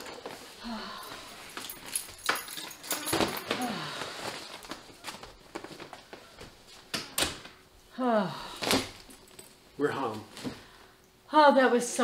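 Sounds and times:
keys clinking on a hook: 0:01.5 - 0:03.6.

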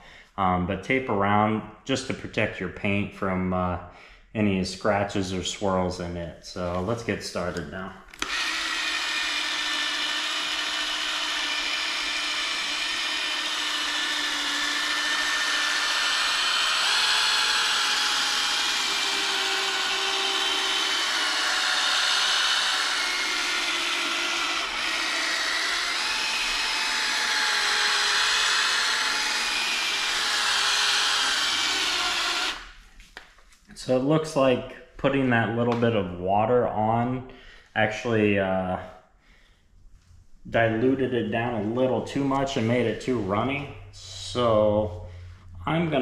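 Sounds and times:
drill motor whine: 0:08.1 - 0:32.8.

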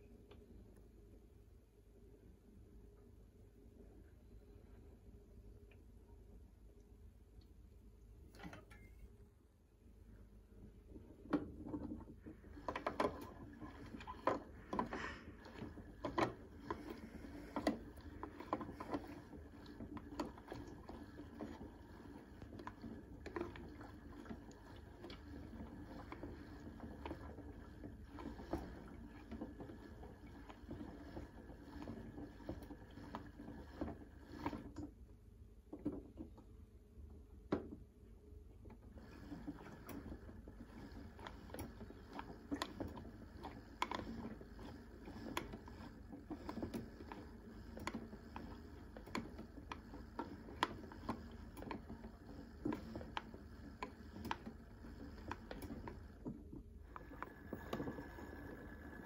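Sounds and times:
toy washing machine drum turning: 0:12.5 - 0:34.7, 0:39.0 - 0:59.0.

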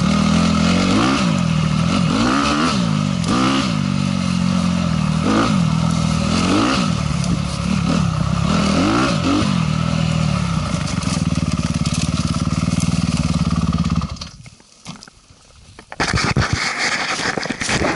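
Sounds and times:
dirt bike engine revving: 0:00.0 - 0:14.4.

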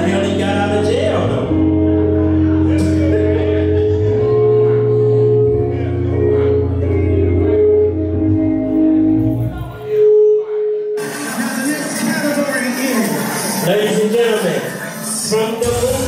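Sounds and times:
music with deep bass line: 0:00.0 - 0:09.9.

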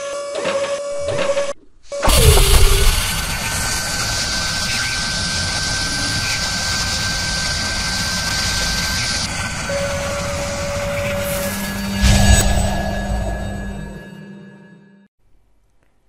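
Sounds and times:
thin high whistle: 0:00.0 - 0:14.0
rushing engine-like drone: 0:02.0 - 0:14.3.

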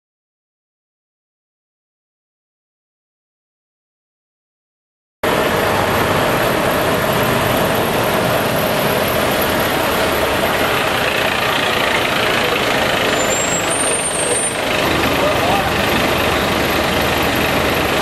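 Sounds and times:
truck diesel engine running: 0:05.2 - 0:18.0.

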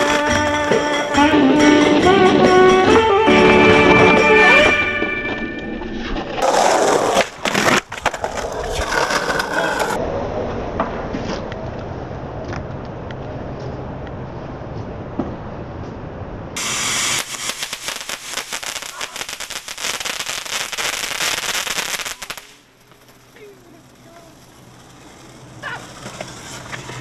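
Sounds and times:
fountain firework hissing and crackling: 0:16.6 - 0:27.0.

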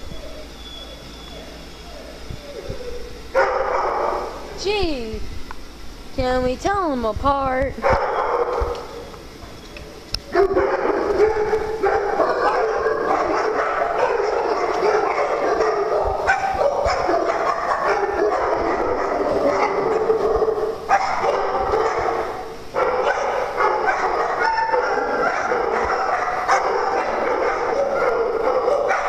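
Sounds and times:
many dogs barking: 0:03.3 - 0:04.4, 0:07.8 - 0:09.0, 0:10.3 - 0:29.0.

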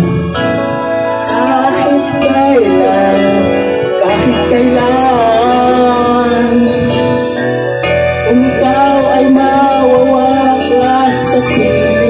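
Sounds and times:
ballad backing track: 0:00.0 - 0:12.0
man singing into a microphone: 0:01.3 - 0:07.4, 0:08.2 - 0:12.0.

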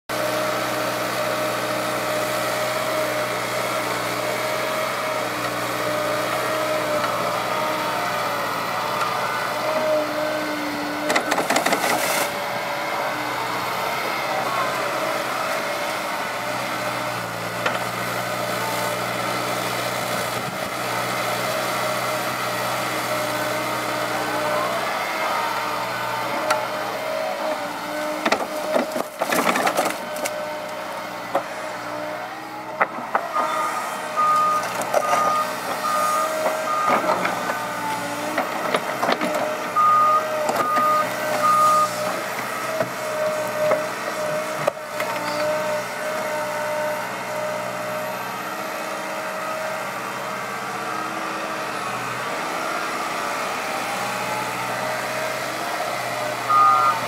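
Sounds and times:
excavator diesel engine running: 0:00.1 - 0:57.0
hydraulic whine: 0:50.6 - 0:57.0.

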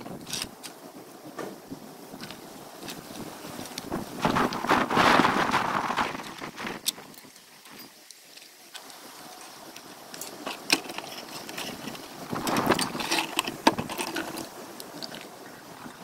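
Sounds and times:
scraping and rustling: 0:01.4 - 0:15.4.

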